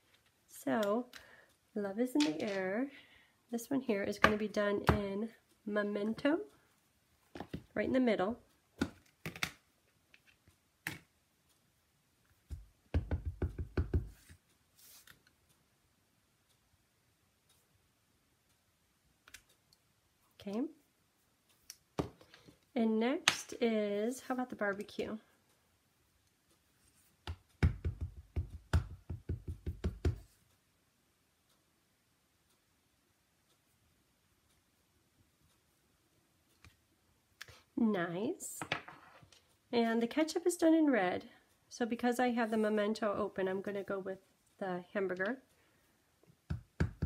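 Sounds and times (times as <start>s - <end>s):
stamp knocking on ink pad: 12.5s - 14.2s, 27.6s - 30.2s.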